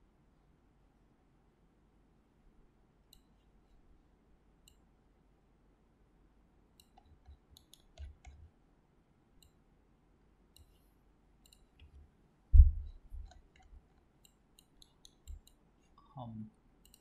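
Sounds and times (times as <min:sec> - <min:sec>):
computer mouse clicks: 0:03.1 - 0:03.4, 0:04.6 - 0:04.8, 0:06.8 - 0:08.4, 0:09.4 - 0:09.6, 0:10.5 - 0:10.8, 0:11.4 - 0:12.0, 0:12.8 - 0:15.6
low thump: 0:12.6 - 0:12.9.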